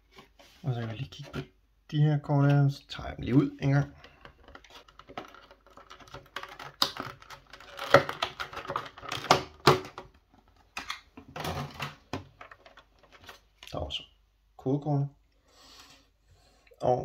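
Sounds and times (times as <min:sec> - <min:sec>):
plastic blister tray crackling: 0:03.7 - 0:13.4.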